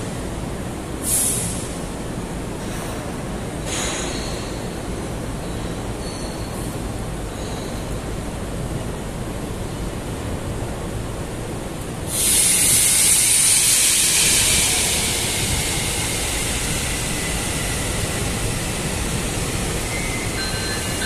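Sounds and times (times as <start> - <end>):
gas hissing loudly: 12.1 - 20.1.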